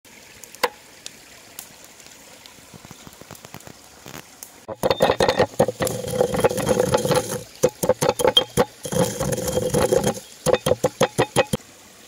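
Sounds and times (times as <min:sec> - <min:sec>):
campfire crackling and popping: 0:00.3 - 0:11.6
pestle grinding in a mortar: 0:04.7 - 0:11.6.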